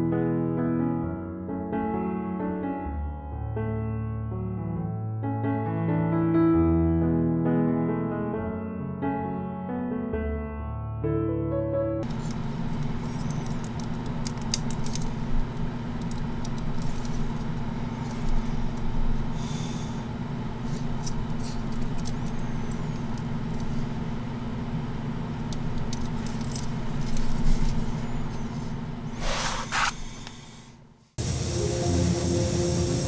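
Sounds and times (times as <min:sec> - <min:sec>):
plastic parts clicking and rattling: 0:12.0 - 0:19.0, 0:20.7 - 0:23.8, 0:25.3 - 0:28.3
steady low hum: 0:12.0 - 0:33.0
rustle of handling: 0:26.1 - 0:30.0.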